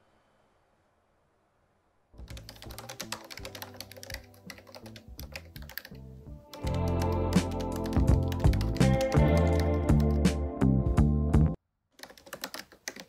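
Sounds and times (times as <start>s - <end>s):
fast typing on laptop keyboard: 2.2s - 6.0s, 6.6s - 10.2s, 12.0s - 13.0s
music: 2.2s - 11.6s.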